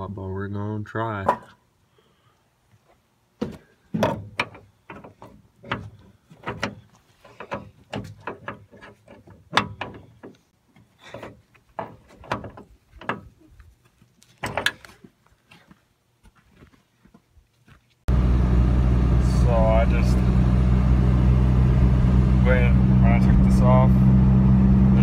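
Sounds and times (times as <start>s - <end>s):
metallic knocks and clanks: 3.9s - 10.5s, 11.1s - 13.3s.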